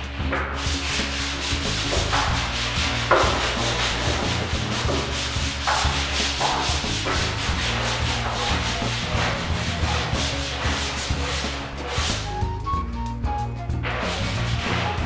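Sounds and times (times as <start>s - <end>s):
sandpaper scraping a wall: 0.3s - 12.6s, 13.7s - 15.0s.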